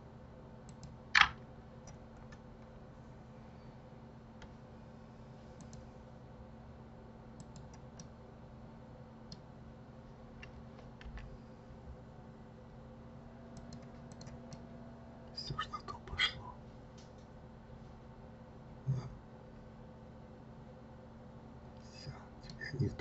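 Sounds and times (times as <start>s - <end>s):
low steady hum: 0.0s - 23.0s
mouse and keyboard clicks: 0.7s - 2.4s, 13.6s - 14.6s.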